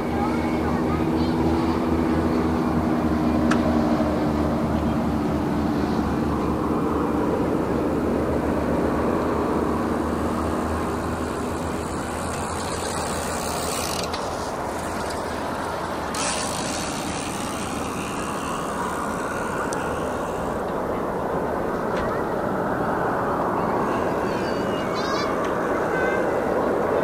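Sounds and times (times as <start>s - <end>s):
distant jet engines rumbling: 0.0s - 27.0s
faint high jet whine: 0.0s - 27.0s.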